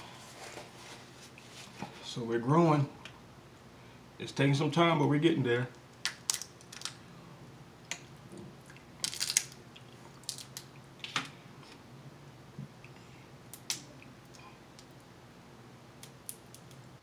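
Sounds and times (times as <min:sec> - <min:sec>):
crab shell cracking: 0:06.0 - 0:07.0, 0:08.8 - 0:10.7, 0:16.0 - 0:16.8.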